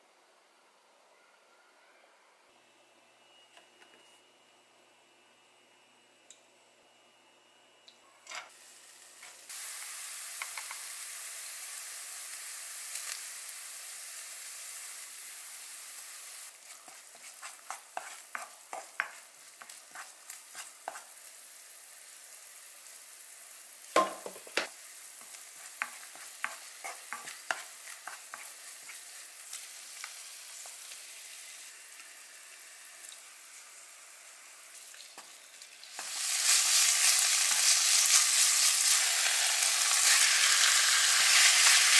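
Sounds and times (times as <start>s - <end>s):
oil sizzling in a wok: 8.4s - 41.9s.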